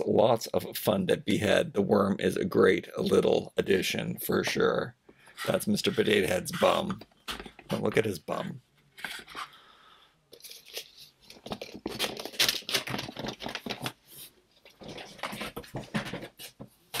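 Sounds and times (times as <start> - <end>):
rustling and clicking handling noise: 4.5 - 9.6, 10.3 - 17.0.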